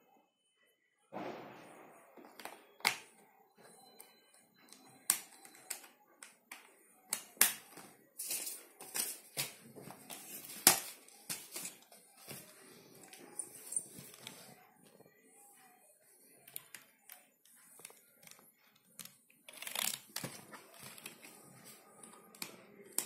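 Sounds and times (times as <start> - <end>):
plastic keyboard clicks and knocks: 17.8 - 21.4.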